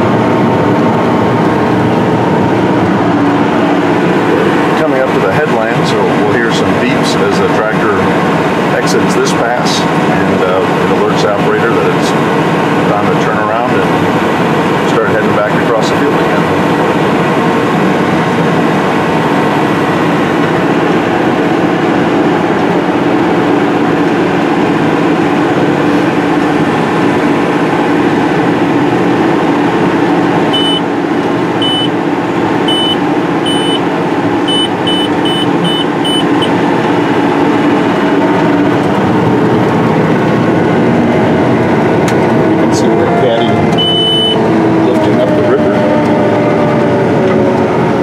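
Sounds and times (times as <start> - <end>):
diesel engine under load: 0.0 - 48.0
short high alarm beeps: 30.5 - 30.8, 31.6 - 31.9, 32.7 - 33.8, 34.5 - 36.6, 43.8 - 44.4.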